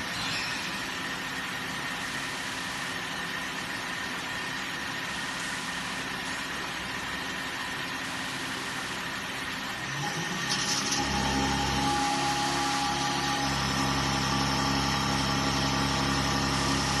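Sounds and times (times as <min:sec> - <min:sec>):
high whine: 0:00.0 - 0:06.7
pump mechanical hum and hiss: 0:00.0 - 0:17.0.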